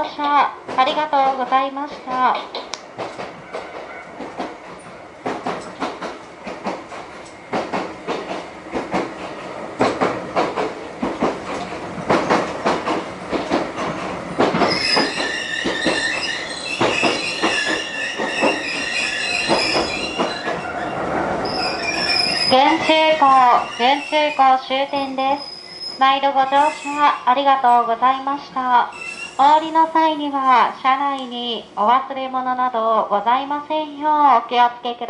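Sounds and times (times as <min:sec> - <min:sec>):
train wheels clicking over rail joints: 0:00.2 - 0:27.8
high steady wheel squeal: 0:14.7 - 0:28.1, 0:28.9 - 0:29.6.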